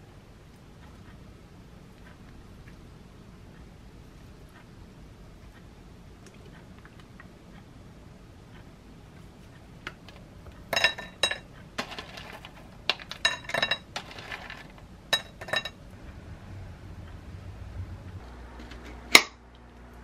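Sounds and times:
coconut chunks rattling in tub: 11.8s - 14.9s.

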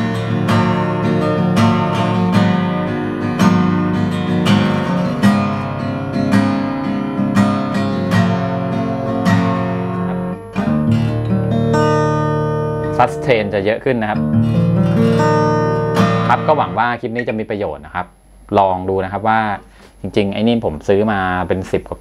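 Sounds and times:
acoustic guitar strumming chords: 0.0s - 17.4s.

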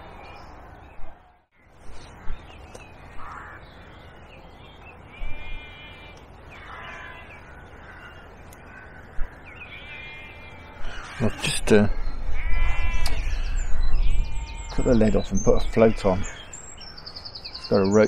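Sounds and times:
outdoor background: 0.0s - 18.0s
harsh animal calls: 5.2s - 17.0s.

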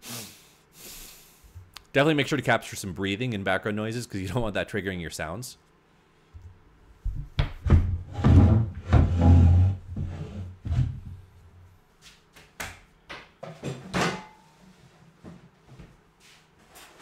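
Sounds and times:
objects knocking and thudding: 7.0s - 10.1s, 13.4s - 14.4s.

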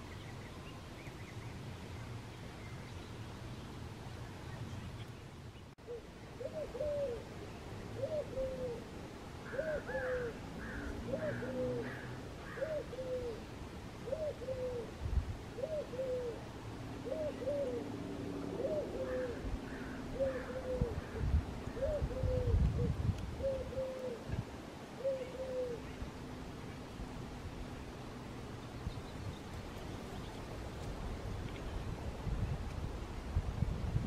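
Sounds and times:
dove cooing: 5.8s - 7.3s, 8.0s - 15.0s, 15.6s - 24.3s, 25.0s - 26.0s.

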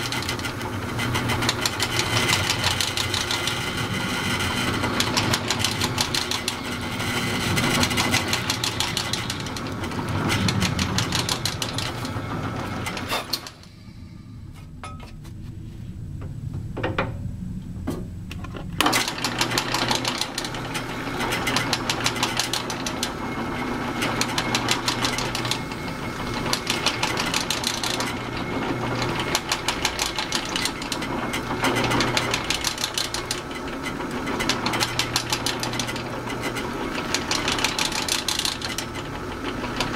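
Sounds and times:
drill press drilling: 0.0s - 13.8s, 18.8s - 39.9s.

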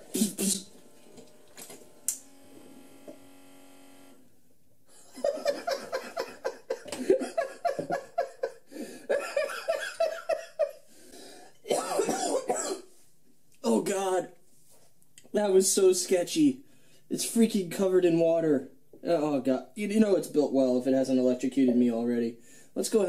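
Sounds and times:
man laughing: 0.0s - 0.7s, 4.9s - 10.8s
coffee maker pump humming: 0.7s - 4.2s.

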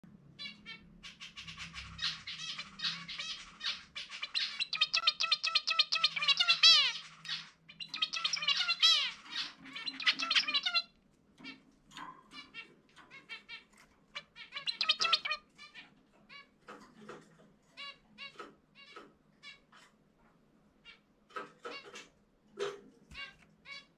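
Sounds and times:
finch single calls: 1.2s - 10.9s, 14.5s - 15.4s
finch singing buzzy notes: 1.4s - 10.9s, 14.6s - 15.4s.

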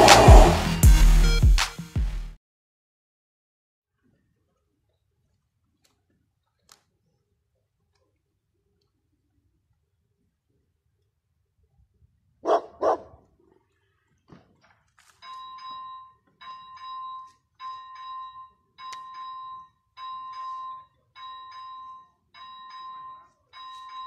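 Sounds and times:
dog barking: 12.4s - 13.3s
level crossing bell ringing: 15.2s - 24.0s.

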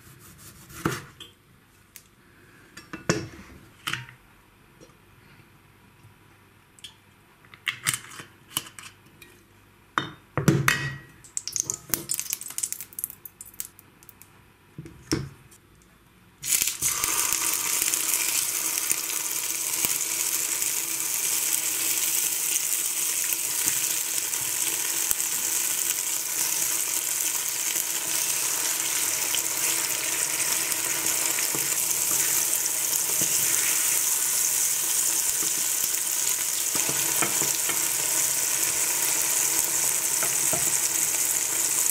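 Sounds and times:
tomato slices sizzling in oil: 11.3s - 13.7s, 16.4s - 41.9s.

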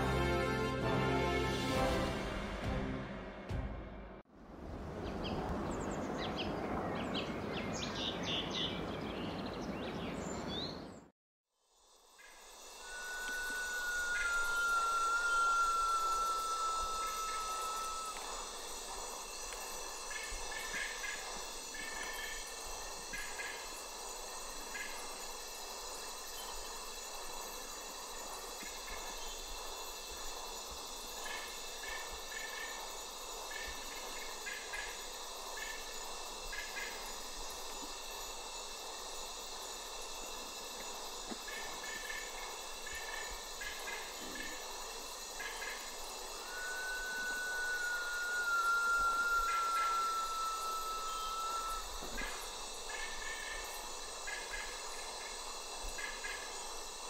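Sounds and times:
high insect chorus: 5.1s - 11.0s, 11.6s - 57.0s
short chirping notes: 12.8s - 18.6s, 46.4s - 52.1s
bird whistle sliding down: 12.8s - 19.6s, 46.2s - 53.0s.

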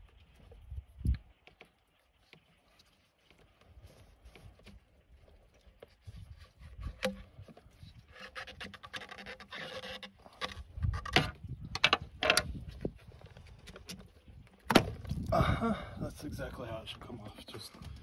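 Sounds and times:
screwdriver scraping plastic: 6.1s - 14.1s
sharp clicks and knocks: 8.2s - 12.7s.

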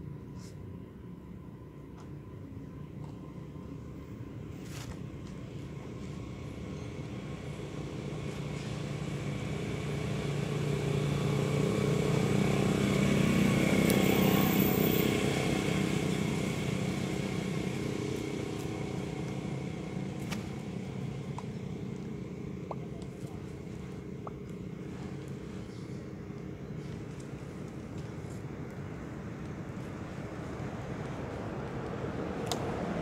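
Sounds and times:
vehicle engine passing by: 7.5s - 26.0s, 26.6s - 33.0s.

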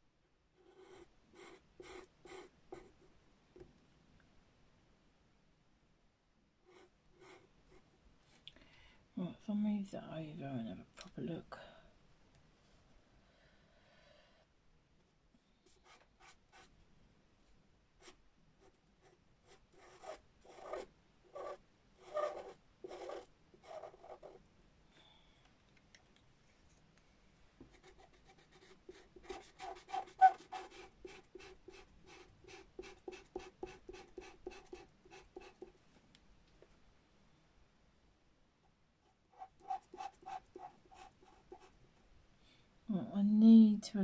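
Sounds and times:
pencil scratching on paper: 0.6s - 3.0s, 6.7s - 7.9s, 15.7s - 16.7s, 18.0s - 24.4s, 27.7s - 35.8s, 39.0s - 41.8s.

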